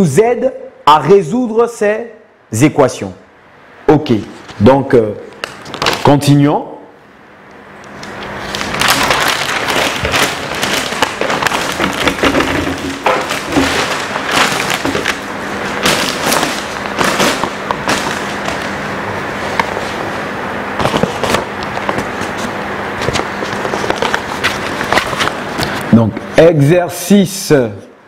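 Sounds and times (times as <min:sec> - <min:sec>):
paper sheets crackling and rustling: 0:05.4 - 0:06.1, 0:08.0 - 0:25.9.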